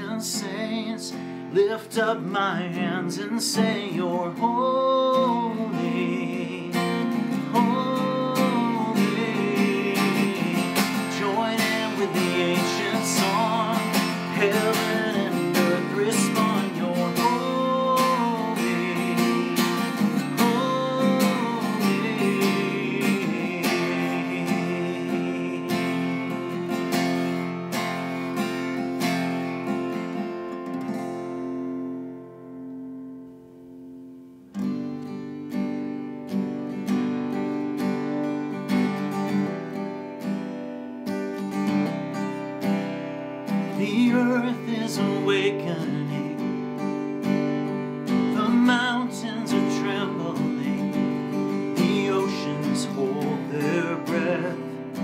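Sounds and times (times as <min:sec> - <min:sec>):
man singing: 0:00.0 - 0:27.4, 0:43.4 - 0:55.0
acoustic guitar strumming: 0:00.0 - 0:55.0.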